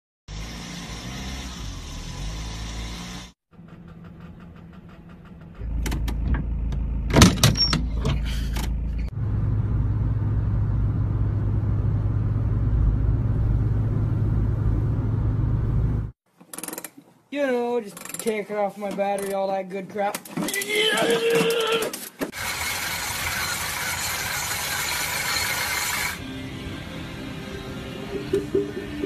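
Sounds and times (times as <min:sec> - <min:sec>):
in-cabin engine and road noise: 0:00.3 - 0:16.2
low drone of car driving: 0:00.3 - 0:16.2, 0:26.2 - 0:29.0.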